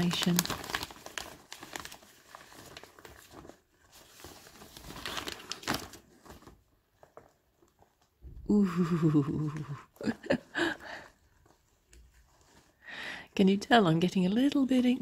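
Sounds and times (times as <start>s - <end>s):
latex rustling: 0.0s - 8.1s, 11.0s - 12.8s
plastic bag crinkling: 0.0s - 8.1s.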